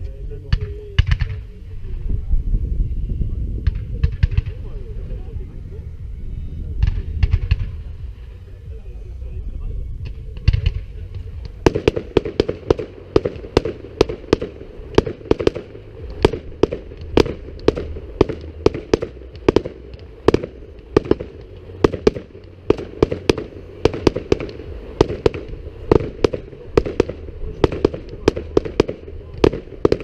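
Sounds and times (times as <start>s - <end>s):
fireworks bangs: 3.6s - 5.1s, 6.8s - 8.4s, 10.0s - 30.0s.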